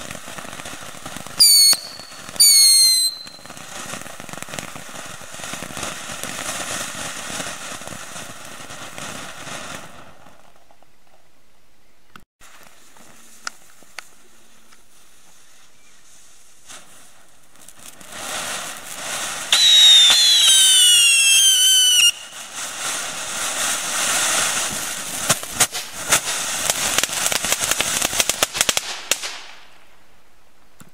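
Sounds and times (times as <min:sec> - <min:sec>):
firework fountain hissing: 0:00.0 - 0:10.3, 0:12.4 - 0:29.8
firework crackling: 0:00.0 - 0:11.2, 0:12.4 - 0:30.6
firework whistle falling in pitch: 0:01.4 - 0:03.5, 0:19.5 - 0:22.4.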